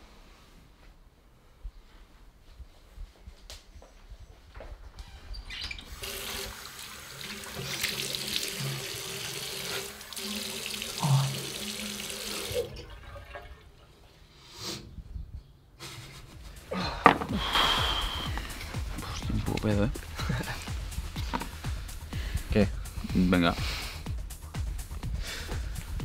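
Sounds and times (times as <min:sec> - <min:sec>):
tap water splashing in sink: 0:07.2 - 0:12.9.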